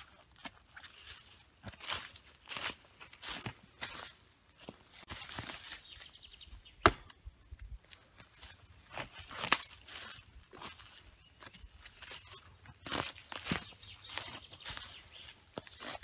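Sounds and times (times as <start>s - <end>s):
footsteps in dry leaves: 0.0s - 6.6s, 7.8s - 16.0s
knife blade striking wood: 6.8s - 7.2s.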